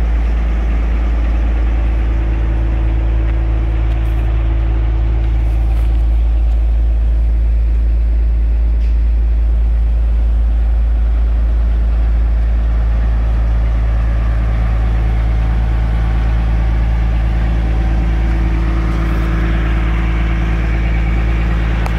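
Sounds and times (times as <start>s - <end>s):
diesel engine idling: 0.0s - 21.9s.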